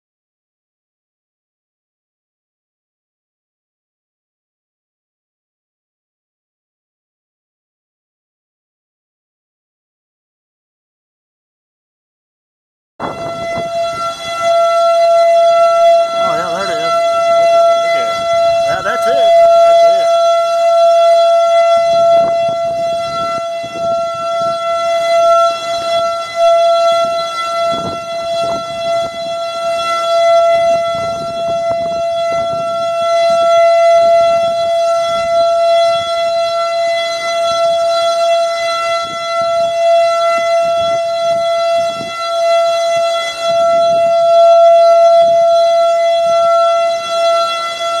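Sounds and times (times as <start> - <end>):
wind rumbling on microphone: 13.0 - 16.3, 16.9 - 36.2, 38.9 - 44.4
warning siren steady tone: 13.0 - 48.0.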